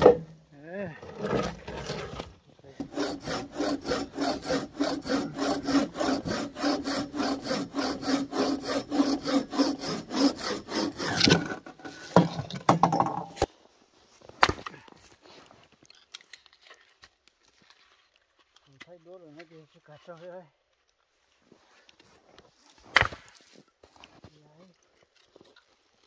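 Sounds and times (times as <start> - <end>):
hand saw cutting wood: 1.0 - 12.4.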